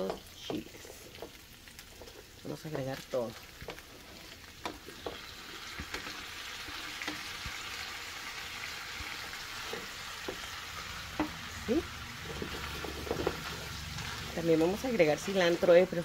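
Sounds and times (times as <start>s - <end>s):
spatula scraping and tapping: 0.0s - 2.3s, 3.6s - 7.6s, 9.6s - 10.5s, 12.2s - 14.3s
food sizzling in a pan: 0.0s - 16.0s.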